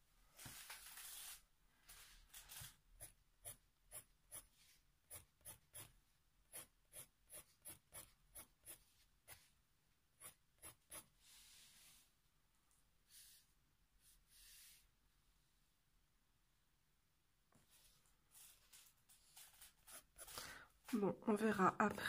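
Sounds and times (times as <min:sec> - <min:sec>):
pencil scratching on paper: 0:03.0 - 0:05.9, 0:06.5 - 0:09.5, 0:10.2 - 0:11.9, 0:18.4 - 0:20.4.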